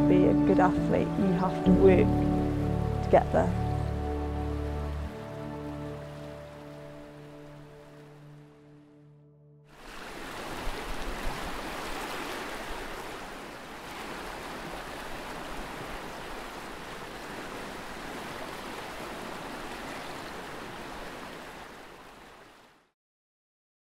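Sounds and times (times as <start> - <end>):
river rapids rushing: 5.1 - 8.2, 9.8 - 22.5.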